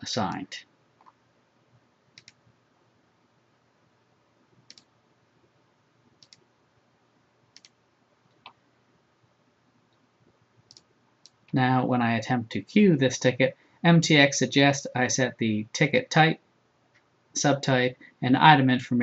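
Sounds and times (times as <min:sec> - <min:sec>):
faint computer mouse clicks: 0:02.1 - 0:02.4, 0:04.6 - 0:04.9, 0:06.2 - 0:06.4, 0:07.5 - 0:08.6, 0:10.7 - 0:11.4.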